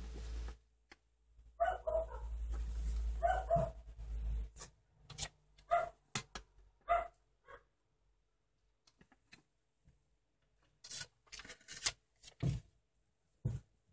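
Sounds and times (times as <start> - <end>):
dog barking: 1.6 - 2.3, 3.2 - 3.8, 5.7 - 6.0, 6.8 - 7.7.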